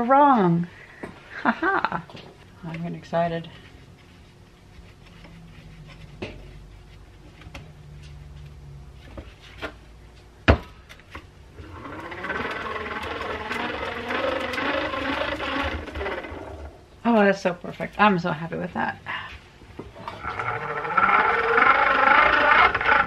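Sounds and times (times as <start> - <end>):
hand-crank grinder gears whirring: 11.6 - 16.9, 20.0 - 23.0.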